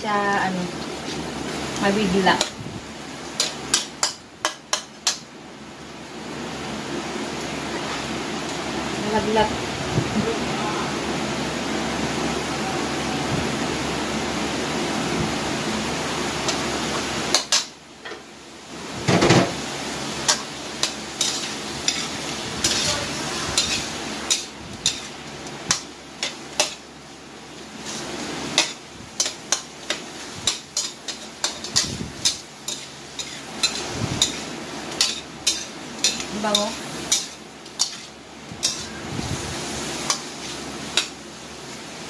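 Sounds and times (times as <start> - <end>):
steady hiss: 18.5 - 42.0
metal spatula scraping a wok: 20.2 - 26.8, 27.8 - 39.0.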